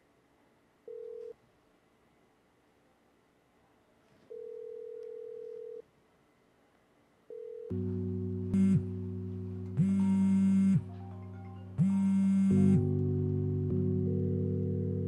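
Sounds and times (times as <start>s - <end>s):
phone ringback tone: 4.3s - 5.8s, 7.3s - 7.8s.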